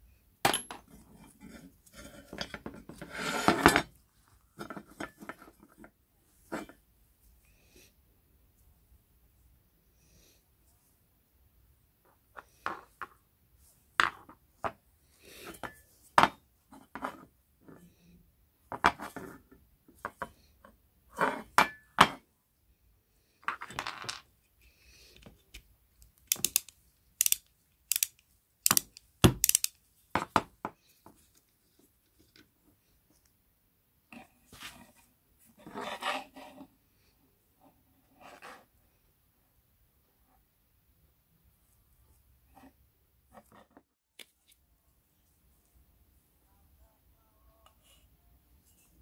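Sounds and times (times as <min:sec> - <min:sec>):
metal parts clinking on wooden table: 0:00.5 - 0:01.0, 0:26.3 - 0:29.8
ratchet wrench clicking: 0:26.3 - 0:29.8.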